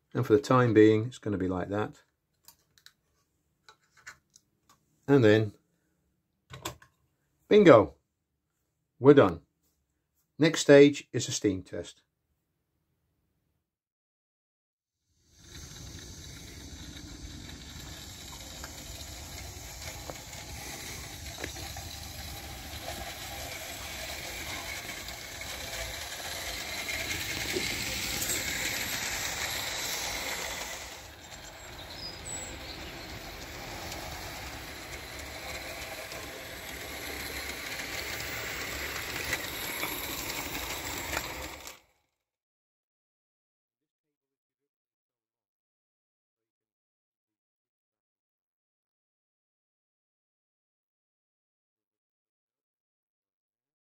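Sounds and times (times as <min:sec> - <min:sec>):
steam locomotive hissing: 0:15.3 - 0:41.7.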